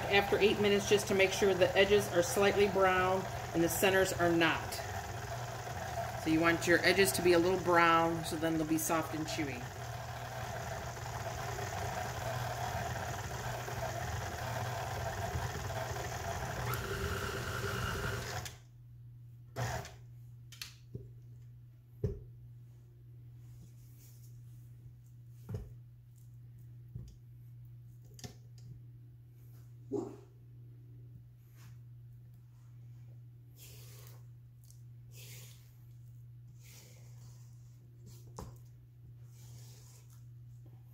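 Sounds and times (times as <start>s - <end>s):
stand mixer churning dough: 0.0s - 18.5s.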